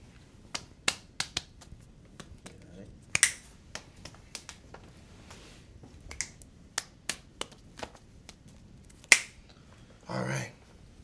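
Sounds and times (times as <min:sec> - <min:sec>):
fingers snapping: 0:00.5 - 0:04.6, 0:06.1 - 0:09.4.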